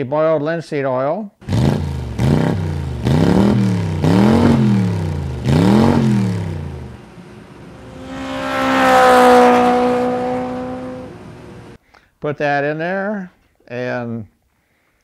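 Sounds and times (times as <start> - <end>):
engine revving: 1.4 - 11.8
car passing by: 6.6 - 11.8.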